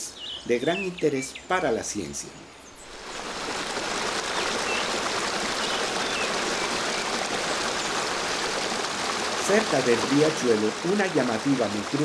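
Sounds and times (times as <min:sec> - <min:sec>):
small waterfall splashing: 0:02.8 - 0:12.0.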